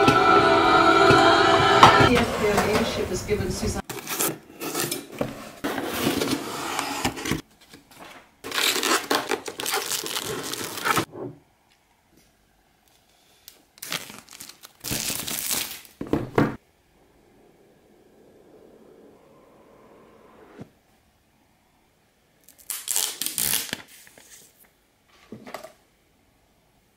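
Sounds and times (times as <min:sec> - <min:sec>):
plastic packing crinkling and tearing: 0:07.7 - 0:11.1, 0:13.4 - 0:16.0, 0:22.4 - 0:24.4.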